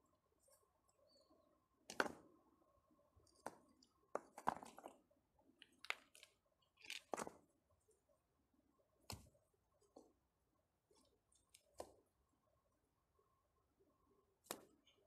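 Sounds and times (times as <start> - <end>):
stones knocking together: 3.4 - 5.0.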